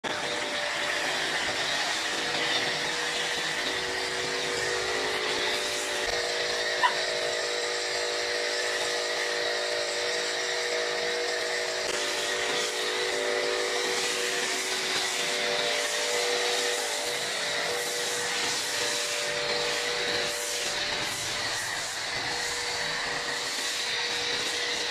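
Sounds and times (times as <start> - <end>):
pressure washer pump humming: 0.0 - 24.9
foam spray hissing: 11.4 - 24.9.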